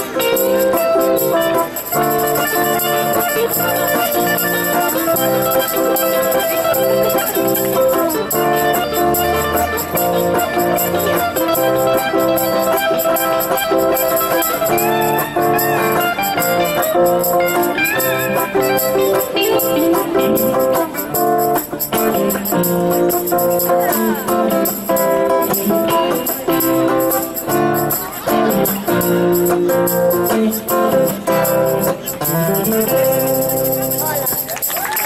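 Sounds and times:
electric lead guitar: 0.0 - 34.6
acoustic guitar accompaniment: 0.0 - 35.0.

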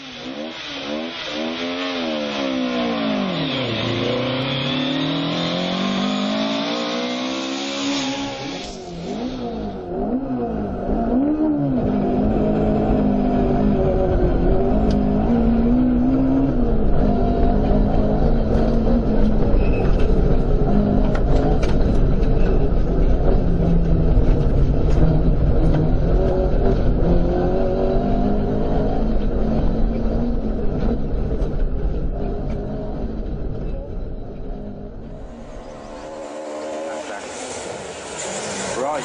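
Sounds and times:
rally car engine revving: 0.0 - 39.0
deeper engine rumble: 7.9 - 39.0.

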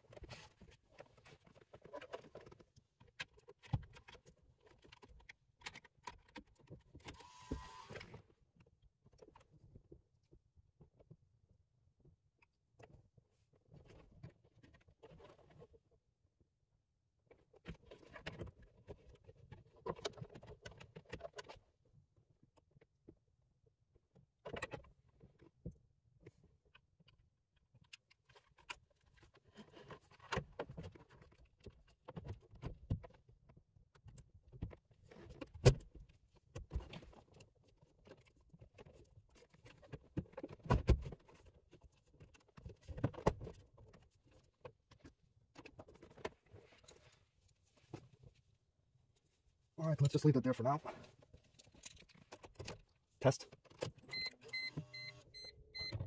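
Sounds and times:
plastic and metal clicks and knocks: 0.1 - 7.2, 17.3 - 21.7, 24.1 - 47.0.

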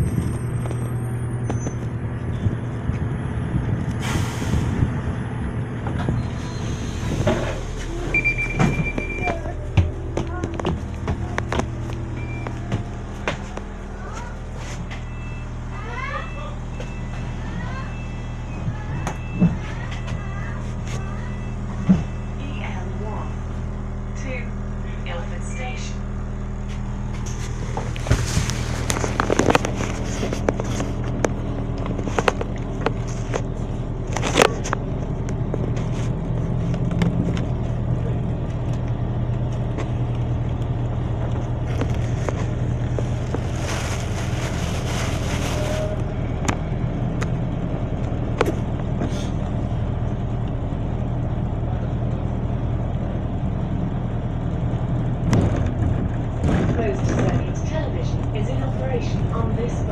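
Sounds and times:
bus drivetrain hum: 0.0 - 59.9
bus body clicks and rattles: 5.7 - 6.4, 7.0 - 15.0, 26.6 - 50.6, 54.9 - 59.4.

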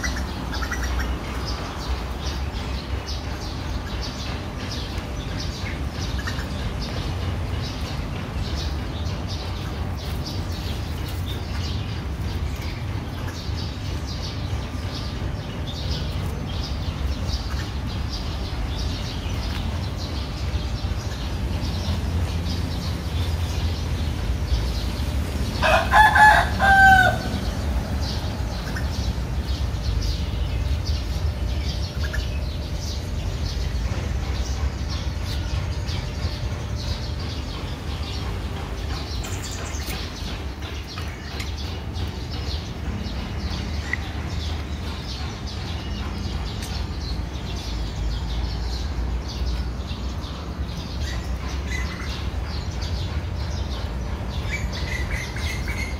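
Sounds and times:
rooster crowing: 25.6 - 27.4.

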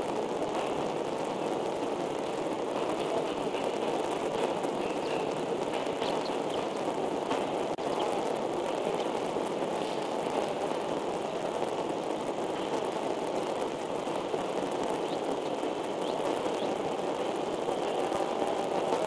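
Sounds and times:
steady rushing noise: 0.0 - 19.0
faint high chirps: 4.4 - 8.9.

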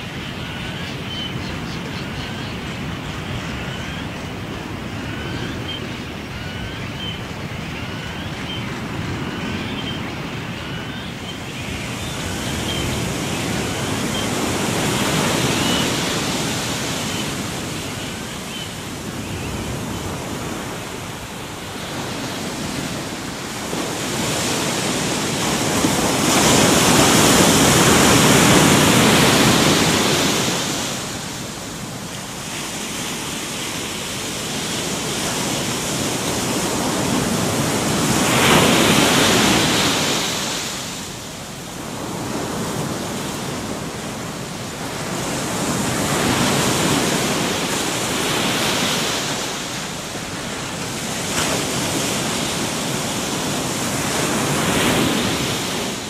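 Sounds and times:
waves breaking on beach: 0.0 - 56.0.

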